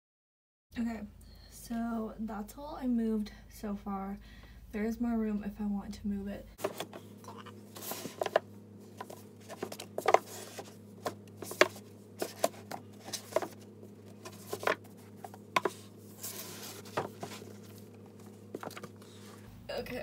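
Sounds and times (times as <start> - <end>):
book sliding scrape: 6.6 - 7.0, 7.7 - 19.5
books knocking on a shelf: 9.0 - 13.6, 14.2 - 15.9, 16.7 - 17.5.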